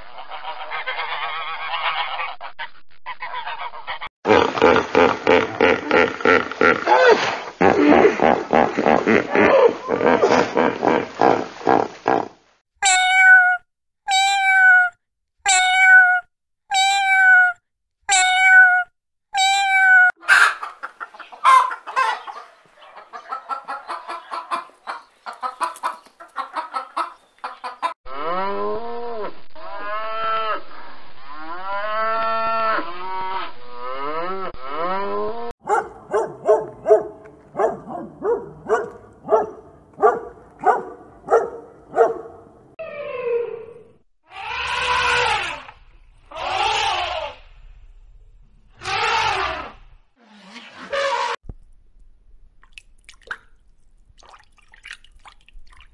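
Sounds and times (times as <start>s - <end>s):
high animal calls: 42.8s - 47.5s, 48.7s - 51.4s
fast short animal calls: 48.8s - 49.8s.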